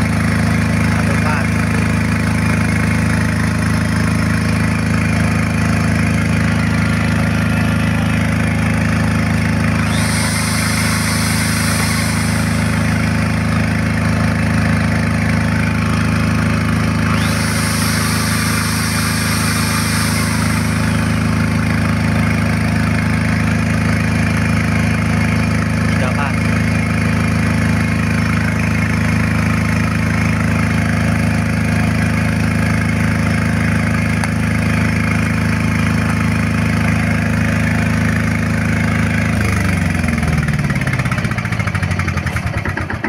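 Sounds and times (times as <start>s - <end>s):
diesel generator humming: 0.0s - 43.0s
high-pitched hiss: 9.8s - 13.4s, 17.2s - 21.6s.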